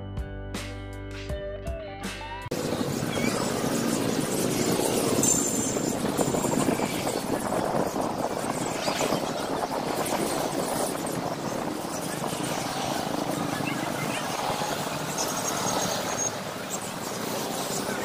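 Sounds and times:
wind: 2.1 - 18.0
road traffic: 2.5 - 18.0
faint high bird chirps: 2.6 - 3.6.

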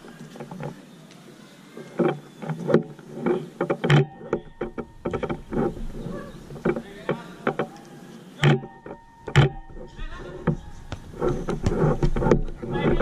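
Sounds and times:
players' voices: 6.5 - 8.3
ball and feet thuds on turf: 10.6 - 13.0.

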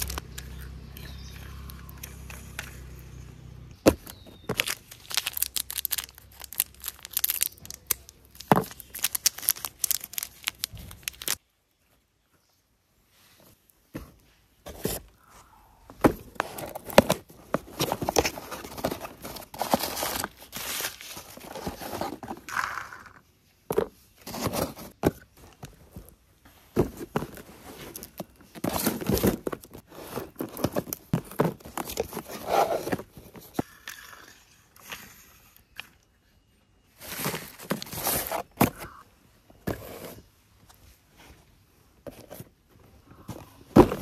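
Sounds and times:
newspaper rustling and crinkling: 3.8 - 11.4.

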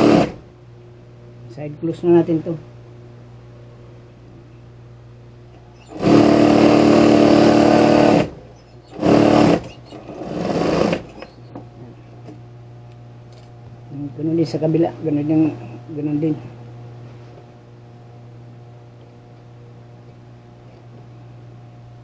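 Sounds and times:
sewing machine stitching: 0.0 - 0.4, 5.8 - 11.4
sewing machine motor humming: 0.0 - 0.5, 5.6 - 12.3.

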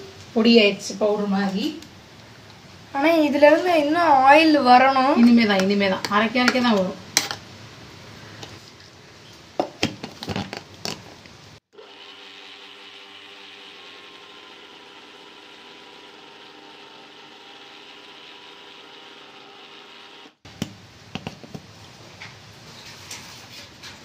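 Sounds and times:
mixer grinder grinding nuts: 11.8 - 20.4.

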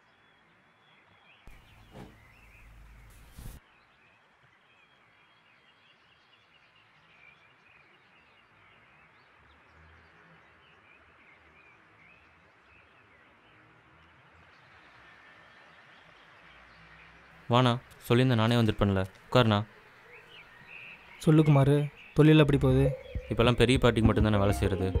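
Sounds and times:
small birds chirping: 1.3 - 4.0, 15.8 - 25.0.

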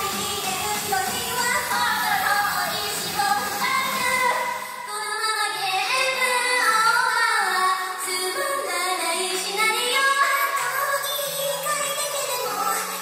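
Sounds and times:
backing track: 0.0 - 4.8
women singing pop song: 0.0 - 13.0.

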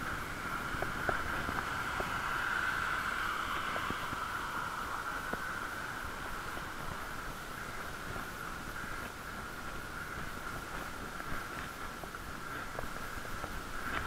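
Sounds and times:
bicycle riding hiss: 0.0 - 14.0.

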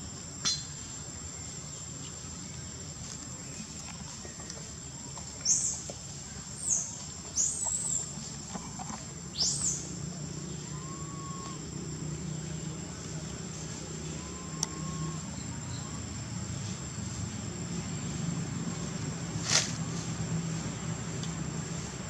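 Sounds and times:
insect drone: 0.0 - 22.0
bird chirps: 0.4 - 0.8, 9.3 - 9.9, 10.5 - 11.6, 14.0 - 16.0.

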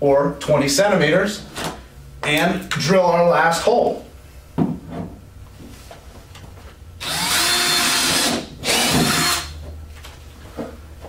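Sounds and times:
cordless drill drilling plastic: 7.0 - 9.5.

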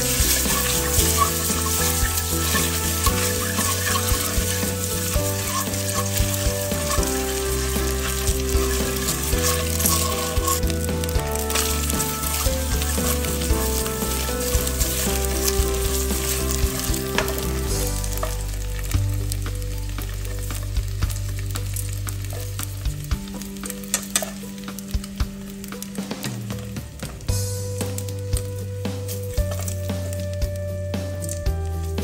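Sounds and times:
eggs sizzling in hot oil: 0.0 - 32.0
metal tongs clicking on pot: 23.9 - 24.5.

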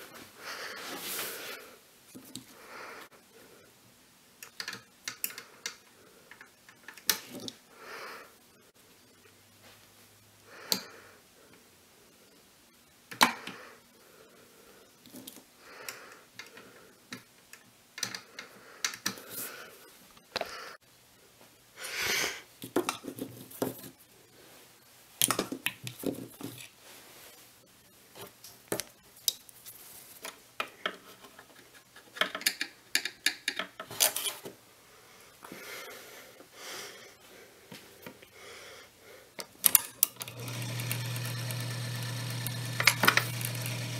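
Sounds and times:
record changer mechanism clicks: 39.5 - 43.9.

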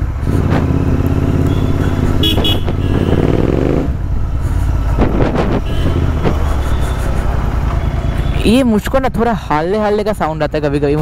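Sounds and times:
motorcycle engine accelerating: 0.0 - 8.2.

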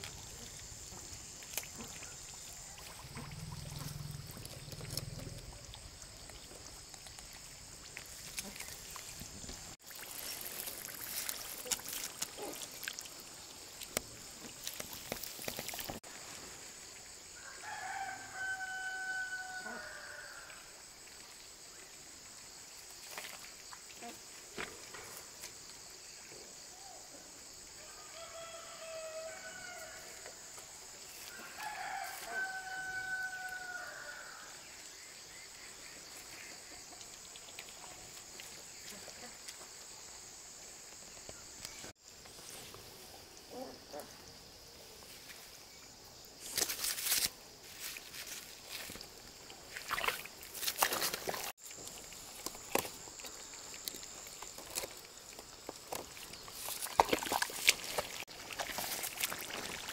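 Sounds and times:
rooster crowing: 17.4 - 20.6, 27.8 - 30.2, 31.3 - 34.5.

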